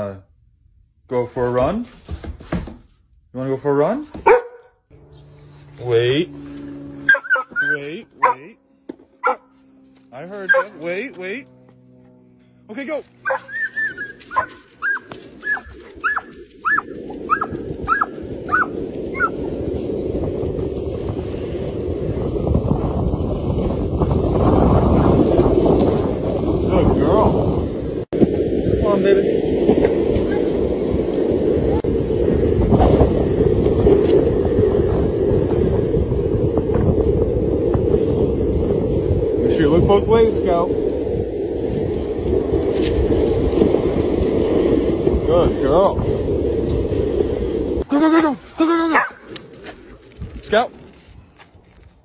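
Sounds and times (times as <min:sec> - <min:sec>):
dog yipping: 0:04.2 - 0:04.7, 0:07.0 - 0:08.4, 0:09.2 - 0:09.5, 0:10.5 - 0:10.8, 0:13.2 - 0:19.3, 0:48.9 - 0:49.3
wind buffeting microphone: 0:13.2 - 0:52.0.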